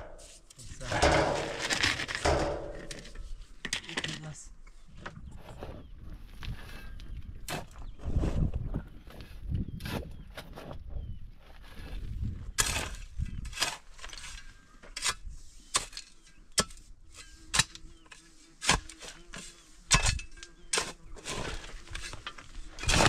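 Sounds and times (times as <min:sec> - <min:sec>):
shovel striking stony soil: 0:00.0 - 0:03.2, 0:12.5 - 0:23.0.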